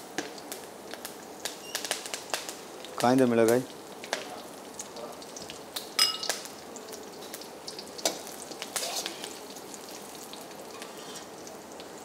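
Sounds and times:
spices sizzling in hot oil: 0.0 - 12.0
metal spatula clinking on pan: 6.0 - 6.3.

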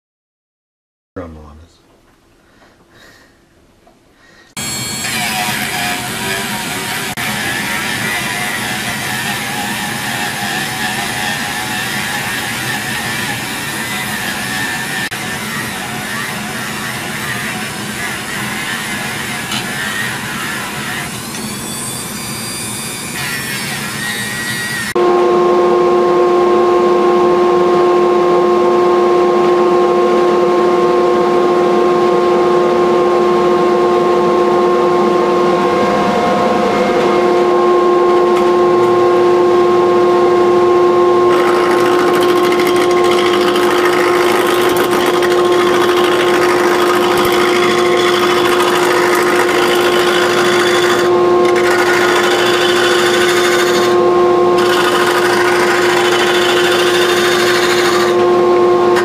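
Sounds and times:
lathe motor hum: 4.6 - 21.4, 40.3 - 59.0
gouge shaving wood: 41.3 - 54.0, 54.6 - 58.2.

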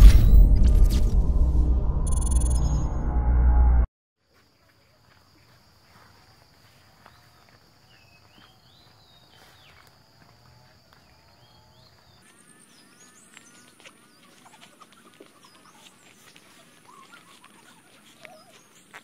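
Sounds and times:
footsteps through tall grass: 4.2 - 19.0
birds chirping: 11.1 - 19.0.

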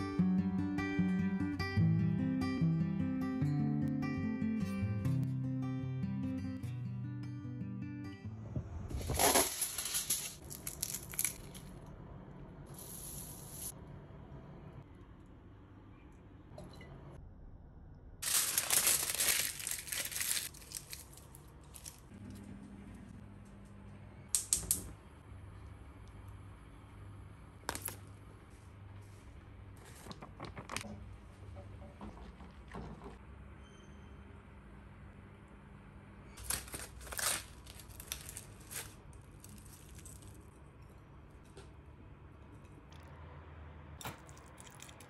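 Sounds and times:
aluminium foil crinkling: 9.1 - 11.8, 18.2 - 22.1, 36.4 - 40.6.

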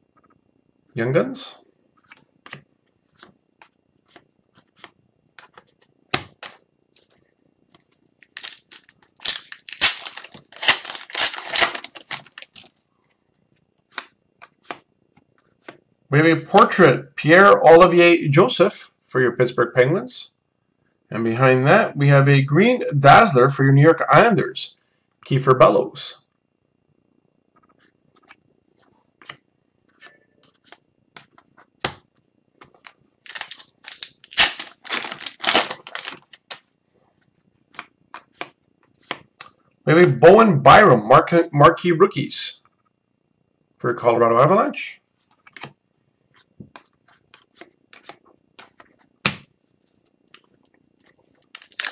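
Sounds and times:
cards being handled: 2.0 - 12.8, 13.8 - 15.8, 32.6 - 39.3, 45.2 - 51.9
foil wrapper crinkling and tearing: 8.2 - 12.8, 32.8 - 36.6, 51.1 - 51.9.

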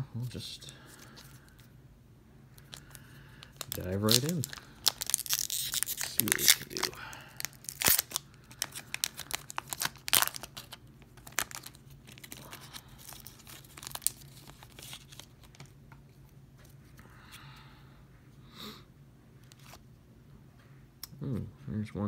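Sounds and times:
foil wrapper crinkling and tearing: 2.6 - 15.7
cards rustling and sliding: 2.6 - 17.0.

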